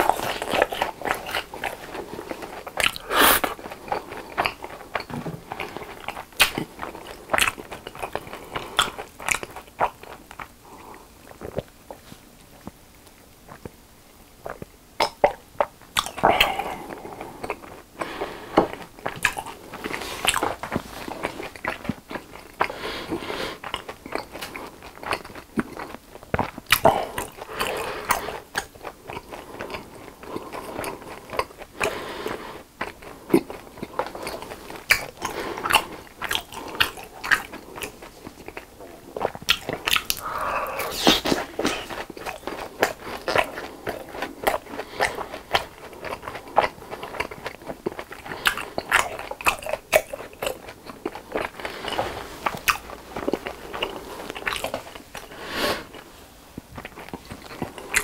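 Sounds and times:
chewing and crunching snacks: 0.0s - 58.0s
wet mouth clicks: 39.3s - 43.4s.

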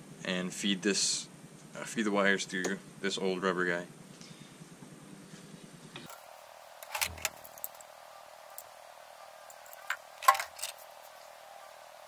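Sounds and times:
rustles: 4.0s - 12.0s
clicks of handling wiring: 9.5s - 10.9s.

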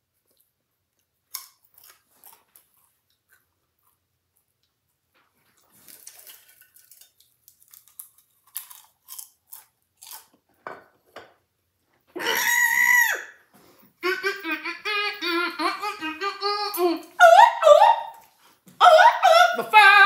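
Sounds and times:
popcorn crunching: 1.2s - 4.0s, 5.6s - 10.5s
rhythmic wordless vocal sounds: 14.0s - 18.1s, 18.8s - 20.0s
woman crying out: 14.0s - 18.2s, 18.8s - 20.0s.

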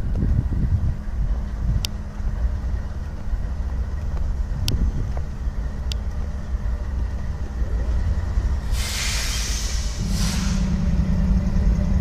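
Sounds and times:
locomotive engines idling: 0.0s - 12.0s
air hiss bursts: 8.7s - 10.8s.

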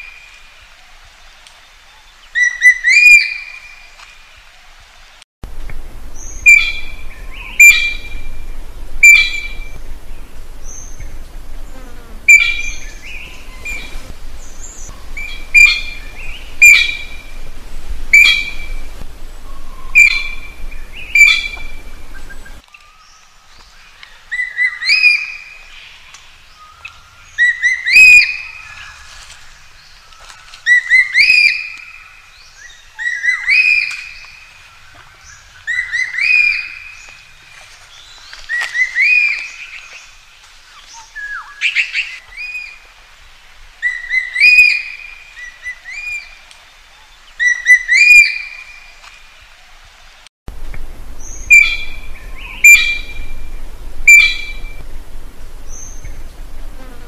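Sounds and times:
magpie ringing calls: 9.0s - 9.7s, 15.2s - 17.2s, 21.1s - 21.8s, 51.2s - 53.4s, 54.0s - 54.7s.

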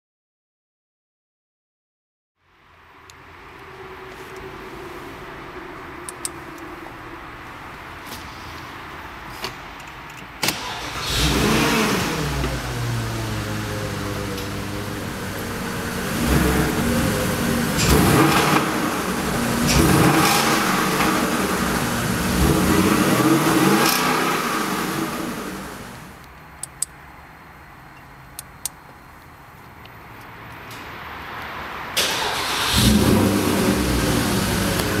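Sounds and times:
car engine revving: 10.5s - 26.2s, 32.0s - 35.0s.

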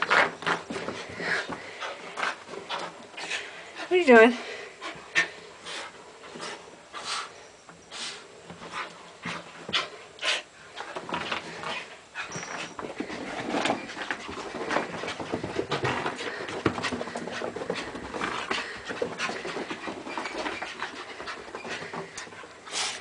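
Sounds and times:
knocks and scuffles: 10.8s - 22.4s
dog panting hard: 14.1s - 23.0s.

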